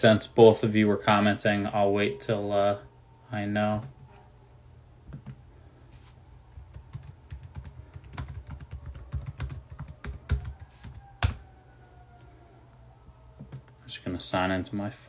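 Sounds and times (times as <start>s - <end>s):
keyboard typing: 6.6s - 11.4s.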